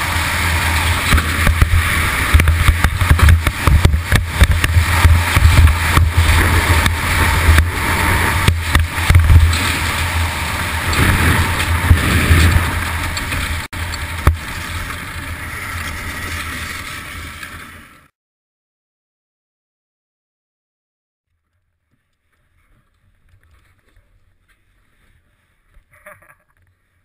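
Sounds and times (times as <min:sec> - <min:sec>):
bobsled runners scraping on ice: 0:00.0 - 0:18.1
sled bumping knocks: 0:01.0 - 0:10.0.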